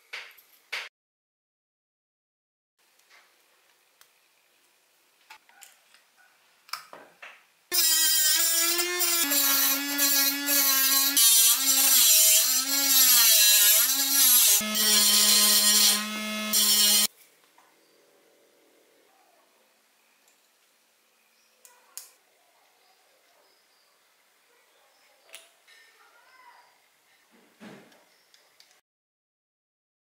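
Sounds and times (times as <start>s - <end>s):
electric saw cutting plastic pipe: 7.7s - 17.1s.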